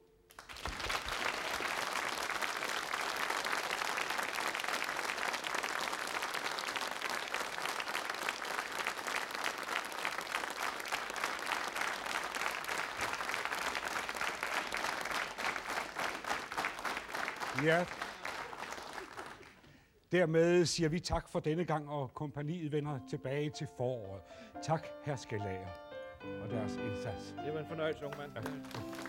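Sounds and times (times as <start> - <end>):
audience applauding: 0.3 - 19.7, 27.9 - 29.0.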